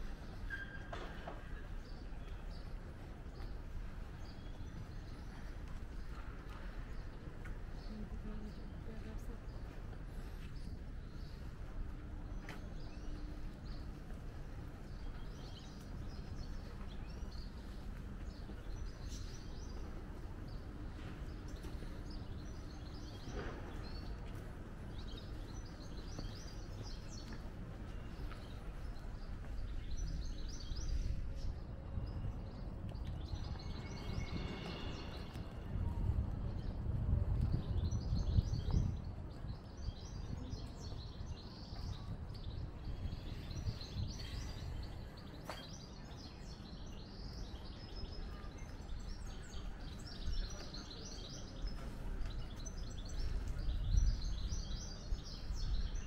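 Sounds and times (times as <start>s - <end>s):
low outdoor rumble: 1.3s - 45.4s
small birds chirping: 1.7s - 36.8s, 37.6s - 56.0s.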